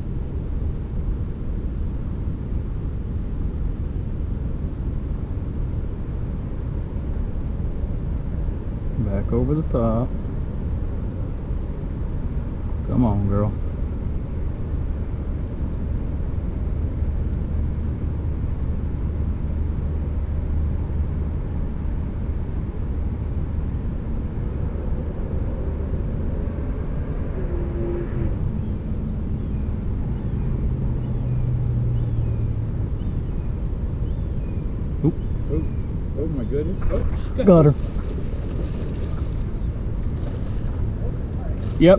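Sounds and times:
distant engine rumble: 0.0s - 41.9s
passing engine: 16.0s - 41.9s.

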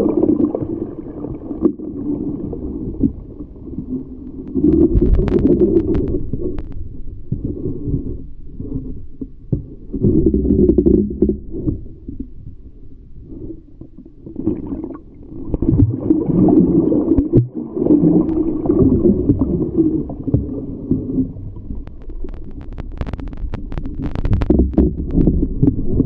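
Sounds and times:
underwater rushing and gurgling: 0.0s - 26.0s
bubbles passing: 4.5s - 6.3s, 14.5s - 26.0s
sharp clicks: 21.7s - 25.4s.

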